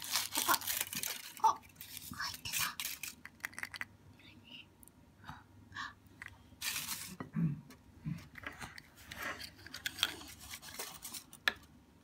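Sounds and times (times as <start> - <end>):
soft whispered voices: 1.4 - 3.0, 4.1 - 6.1
plastic toy capsule clicks: 2.9 - 3.9.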